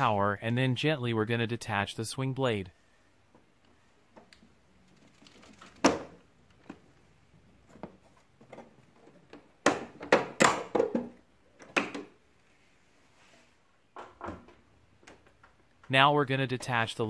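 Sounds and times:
plastic rattles: 0:04.8 - 0:06.8.

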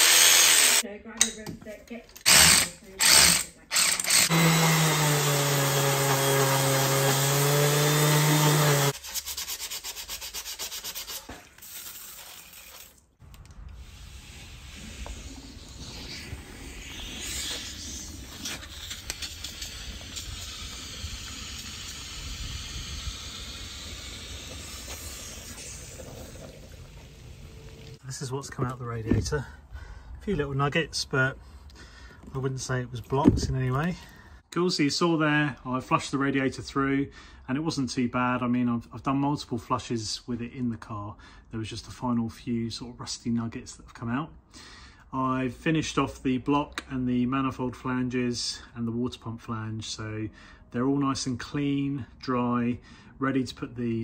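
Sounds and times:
cordless power tool whirring: 0:00.0 - 0:00.8, 0:02.2 - 0:09.0
hose water splashing: 0:10.4 - 0:13.1.

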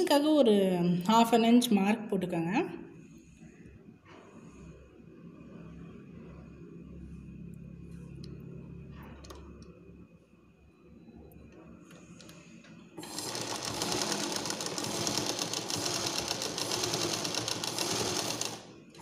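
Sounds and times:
sewing machine stitching: 0:11.9 - 0:19.0.

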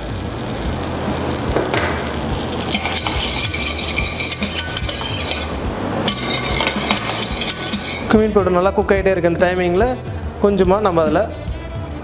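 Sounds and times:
butter sizzling in a saucepan: 0:00.0 - 0:08.1
metal whisk clinking against pan: 0:02.6 - 0:08.2.

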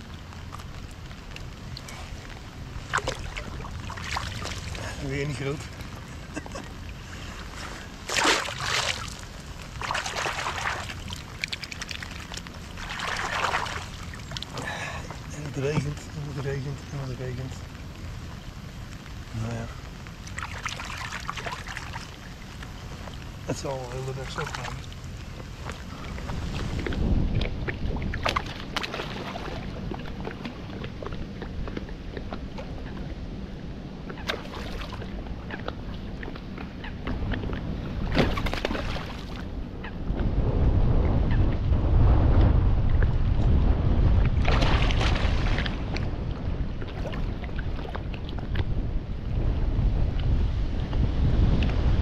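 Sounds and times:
heavy rain rumble: 0:00.0 - 0:28.0
water splashing and sloshing: 0:00.0 - 0:52.0
water dripping: 0:08.1 - 0:16.1
heavy rain hissing: 0:12.9 - 0:26.8.

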